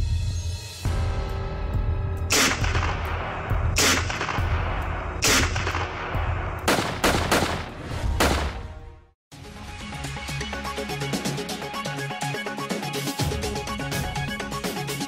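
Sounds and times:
cinematic hits with echo: 1.0 - 8.7.

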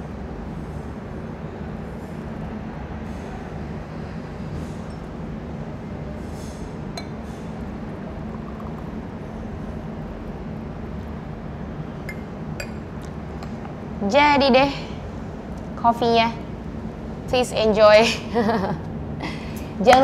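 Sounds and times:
glass clinking against cup: 7.0 - 7.2, 12.1 - 12.8
coffee pouring into cup: 7.0 - 9.0.

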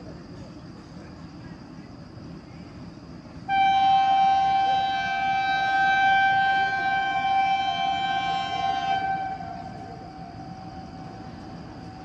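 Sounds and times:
train horn blast: 3.5 - 12.0.

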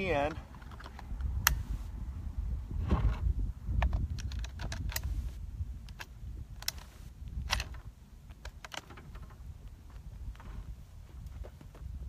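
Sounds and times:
low wind rumble: 0.0 - 12.0
rifle bolt metallic clicks: 0.5 - 1.8, 3.8 - 5.2, 5.8 - 9.0.

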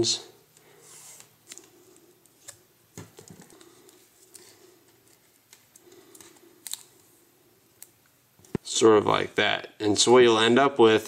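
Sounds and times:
electrical tape crackling: 1.2 - 8.8.

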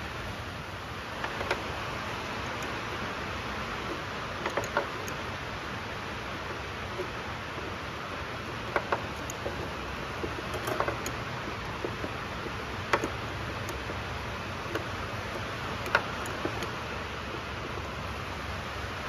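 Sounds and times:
steady hiss: 0.0 - 19.0
wrench clicking on bolt: 1.2 - 2.8, 4.4 - 5.2, 8.5 - 18.0.

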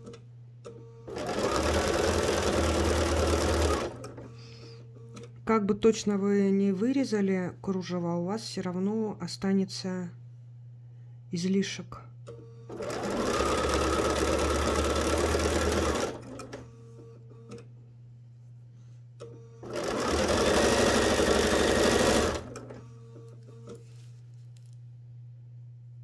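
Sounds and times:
sewing machine stitching: 1.1 - 4.3, 12.7 - 16.6, 19.6 - 22.8.

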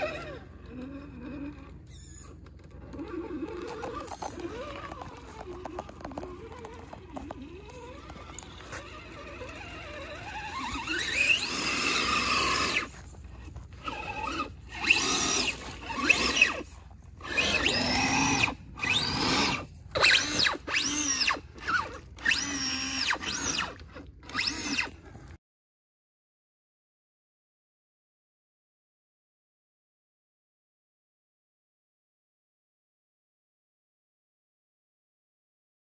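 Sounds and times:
toy truck motor whining: 0.0 - 25.3.

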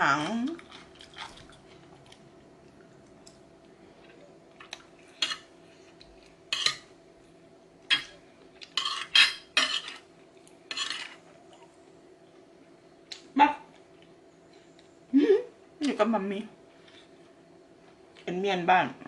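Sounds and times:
metal spoon scraping ceramic plate: 10.7 - 11.2.

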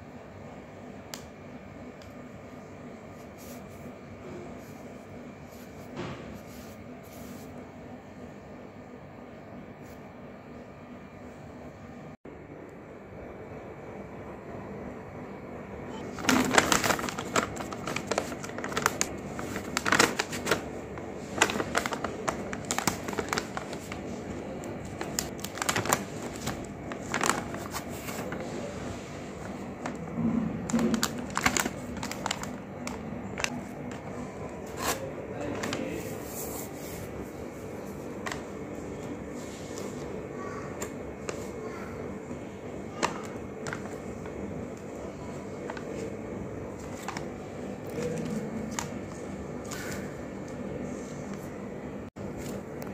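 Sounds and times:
plastic packaging crinkling: 16.0 - 36.0, 42.9 - 50.1.

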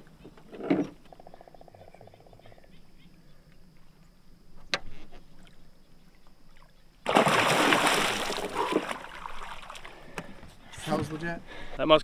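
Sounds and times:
fish tail splashing water: 7.0 - 10.2.

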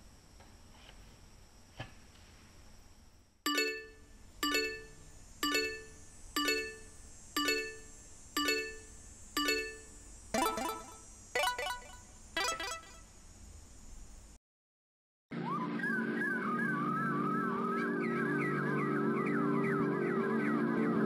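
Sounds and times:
timer chime alarm: 3.5 - 13.0.

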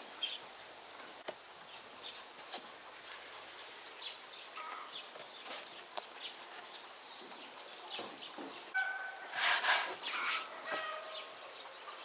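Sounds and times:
small birds chirping: 0.0 - 12.0
chicken squawk: 8.8 - 9.4.

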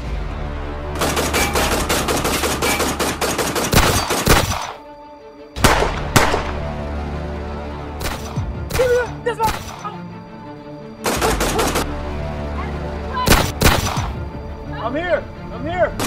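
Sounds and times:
background music with bass line: 0.0 - 2.6
loud single gunshots: 1.0 - 4.8, 5.6 - 6.7, 13.3 - 14.2
rapid gunfire: 1.0 - 4.8, 5.6 - 6.6, 11.0 - 12.0, 13.3 - 14.2.

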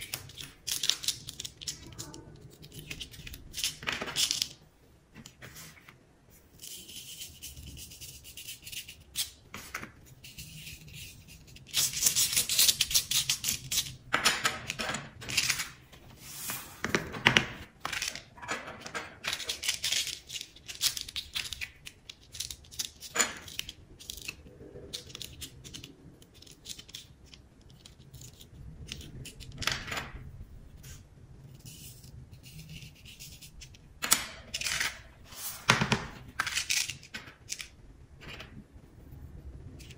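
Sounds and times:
wooden stick scratching card: 6.6 - 14.0.

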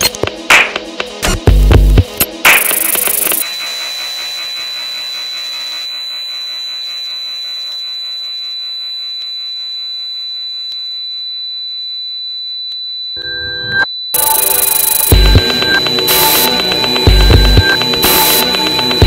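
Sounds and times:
high-pitched electronic tone: 2.2 - 9.1, 13.2 - 19.0.

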